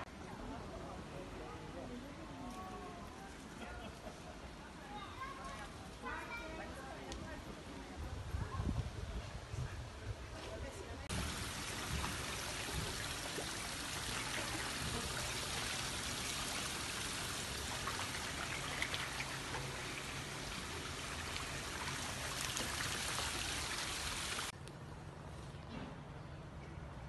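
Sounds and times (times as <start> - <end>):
running water rushing: 11.1 - 24.5
small water splashes: 11.1 - 24.5.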